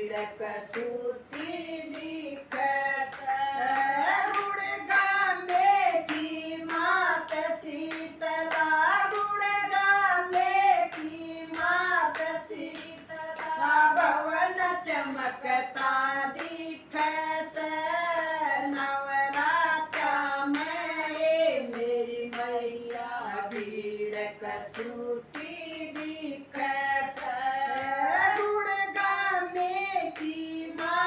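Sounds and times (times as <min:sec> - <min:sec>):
rhythmic hand claps: 0:00.0 - 0:31.0
women singing together: 0:00.0 - 0:31.0.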